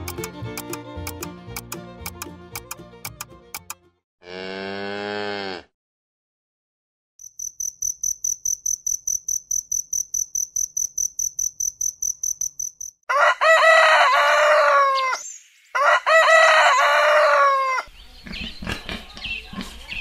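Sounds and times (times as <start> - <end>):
cricket chirping: 7.2 - 13.0
rooster crowing: 13.1 - 15.2, 15.8 - 17.9.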